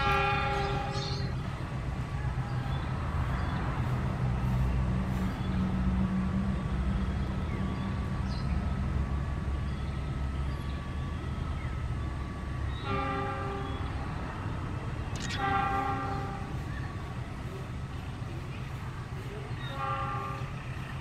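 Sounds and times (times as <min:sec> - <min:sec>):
train horn: 0:00.0 - 0:01.3, 0:12.3 - 0:14.1, 0:15.3 - 0:16.7, 0:19.6 - 0:20.9
diesel locomotive engine rumble: 0:00.0 - 0:21.0.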